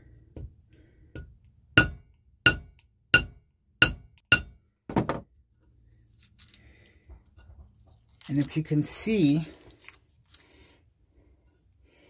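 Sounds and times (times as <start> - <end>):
hammer ringing on metal: 1.8 - 4.6.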